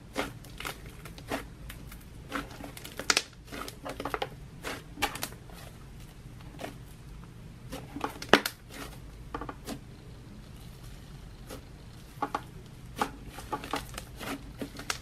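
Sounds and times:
fan hum: 0.0 - 15.0.

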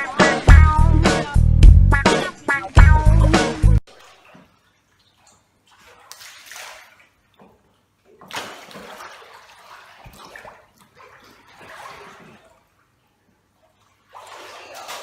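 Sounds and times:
water splashing around swimming dog: 3.9 - 15.0.

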